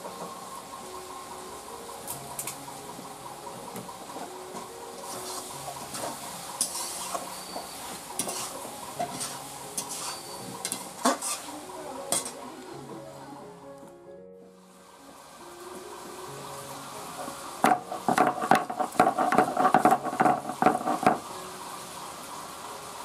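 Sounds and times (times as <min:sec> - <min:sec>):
light sizzling: 0:00.0 - 0:23.0
spatula scraping and clinking on pan: 0:05.1 - 0:11.5, 0:12.1 - 0:12.4.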